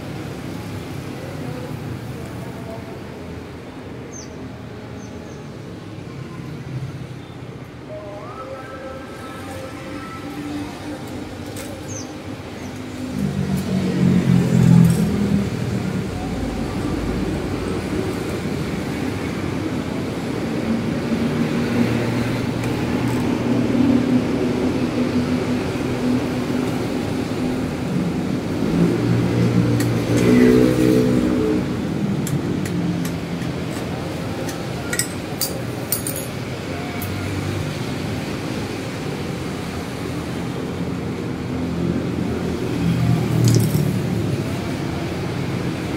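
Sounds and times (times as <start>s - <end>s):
passing motor vehicles: 0.0s - 45.9s.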